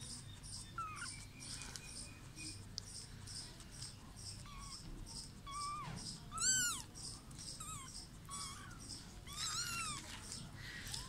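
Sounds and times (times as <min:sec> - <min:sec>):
kitten mewing: 0:05.5 - 0:06.9, 0:07.6 - 0:10.1.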